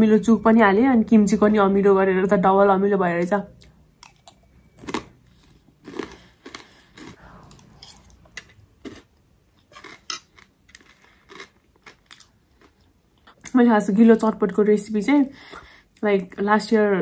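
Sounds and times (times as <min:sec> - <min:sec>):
crunchy chewing: 0:03.6 - 0:13.4.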